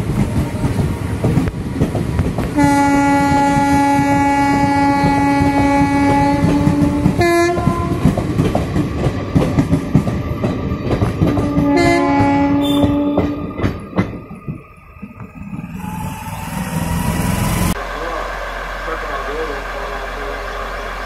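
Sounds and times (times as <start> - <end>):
train wheels clickety-clack: 0.0 - 17.7
locomotive horn blasts: 2.6 - 8.0, 11.4 - 13.6.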